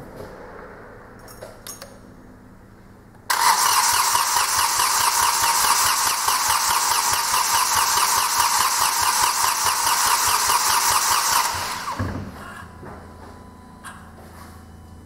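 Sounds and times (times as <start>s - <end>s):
starter motor cranking diesel engine: 3.3s - 12.0s.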